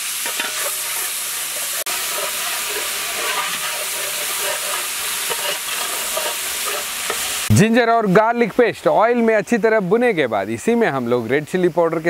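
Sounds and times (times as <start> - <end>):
metal spatula stirring: 0.0 - 7.5
paste sizzling in hot oil: 0.0 - 7.6.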